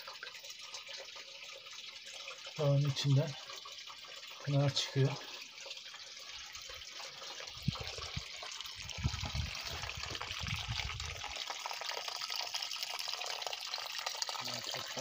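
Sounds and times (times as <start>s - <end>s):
water trickling over rocks: 0.0s - 15.0s
low rumbles and thumps: 7.6s - 11.1s.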